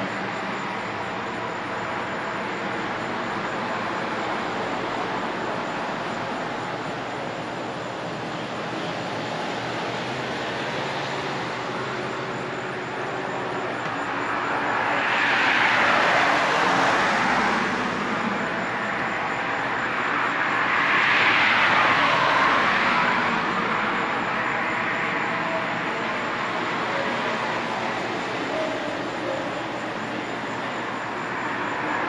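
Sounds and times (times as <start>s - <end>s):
steady traffic: 0.0s - 32.0s
vehicles passing close by: 0.0s - 32.0s.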